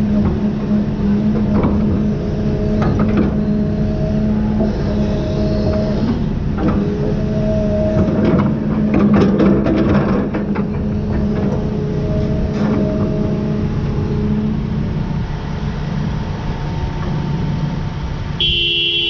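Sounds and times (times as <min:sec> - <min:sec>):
excavator engine rumble: 0:00.0 - 0:19.0
faint hydraulic whine: 0:00.9 - 0:08.9
horn sounding: 0:18.4 - 0:19.0.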